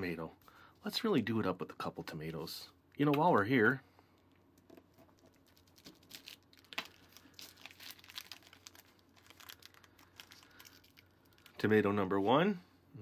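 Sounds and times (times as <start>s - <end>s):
plastic film crinkling: 4.7s - 11.6s.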